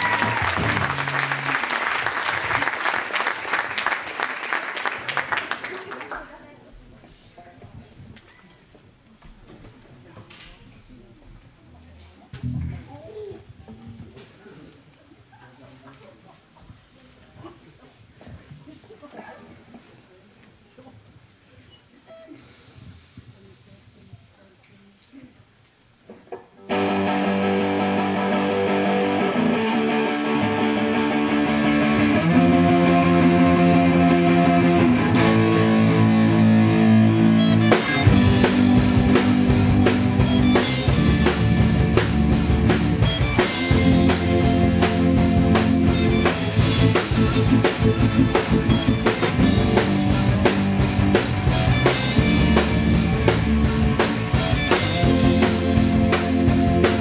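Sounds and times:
live rock band playing: 0:00.0 - 0:01.7, 0:26.7 - 0:57.0
sustained guitar chords: 0:26.7 - 0:57.0
drum kit and bass: 0:30.6 - 0:57.0.

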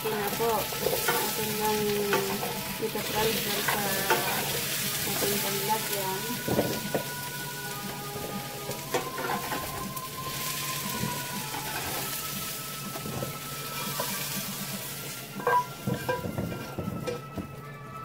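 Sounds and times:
vegetables sizzling in oil: 0:00.0 - 0:18.0
spatula scraping a pan: 0:00.3 - 0:17.2
pan knocking on a bowl: 0:15.4 - 0:17.5.

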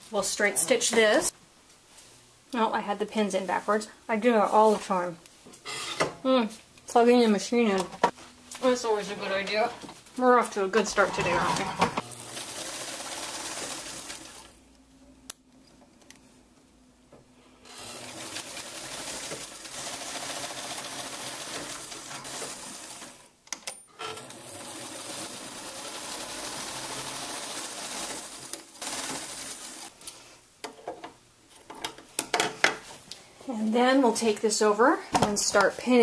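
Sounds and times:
electric sewing machine running: 0:11.2 - 0:14.5, 0:17.7 - 0:23.2, 0:24.1 - 0:29.9.

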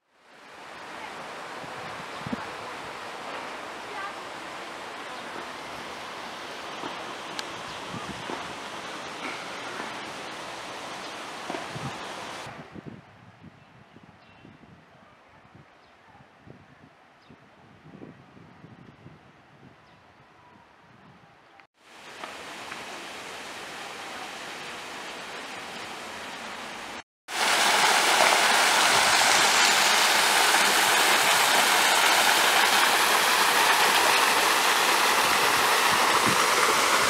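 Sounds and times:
waterfall rushing splash: 0:21.9 - 0:37.0.

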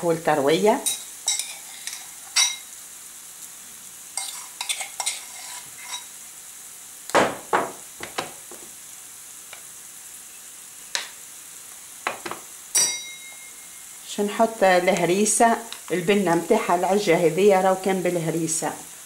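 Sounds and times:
oil sizzling in a frying pan: 0:00.0 - 0:19.0
spoon knocking against pan: 0:07.2 - 0:08.6, 0:12.0 - 0:13.4.

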